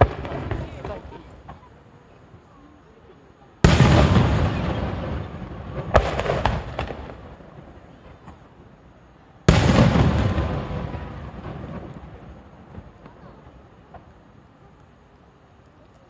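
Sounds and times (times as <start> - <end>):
small firework pops: 0.0 - 1.7, 3.6 - 7.3, 8.0 - 8.5, 9.5 - 15.0
firework crack: 0.0 - 2.6, 3.6 - 16.0
firework boom: 3.6 - 7.2, 9.5 - 12.2.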